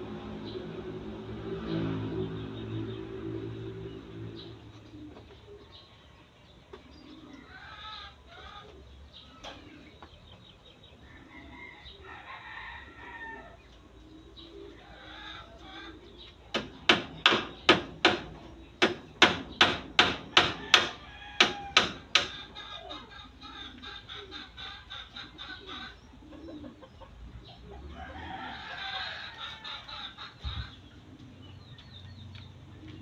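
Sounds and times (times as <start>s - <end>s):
chicken clucking: 4.4s - 16.5s, 20.6s - 32.1s
hammer blows on nails: 16.5s - 22.4s.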